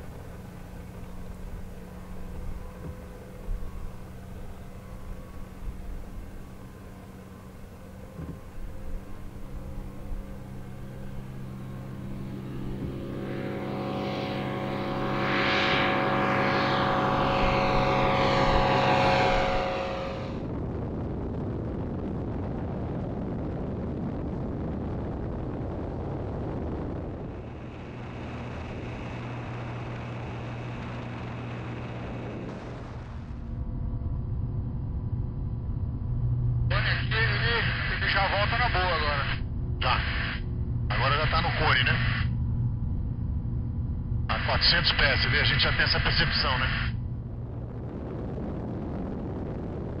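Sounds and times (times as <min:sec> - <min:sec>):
propeller aircraft engine: 0:00.0 - 0:50.0
rushing air: 0:11.2 - 0:21.0.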